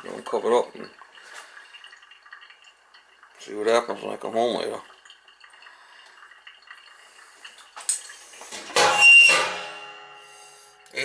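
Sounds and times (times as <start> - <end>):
kitchenware clattering: 8.5 - 10.4.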